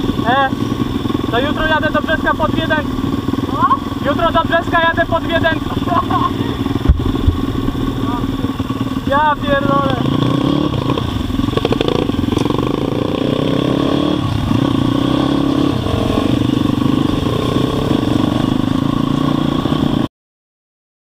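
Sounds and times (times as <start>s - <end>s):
dirt bike engines revving: 0.0s - 20.1s.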